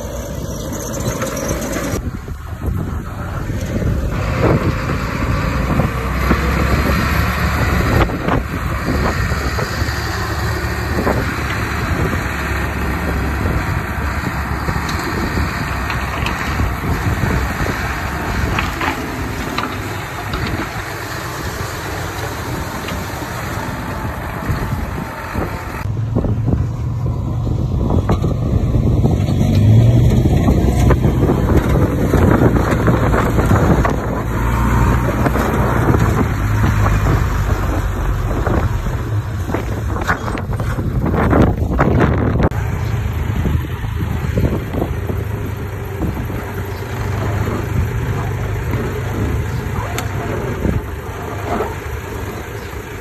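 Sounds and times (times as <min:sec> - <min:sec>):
diesel machinery engine under load: 0:00.0 - 0:53.0
soil and stones clattering: 0:06.2 - 0:25.2.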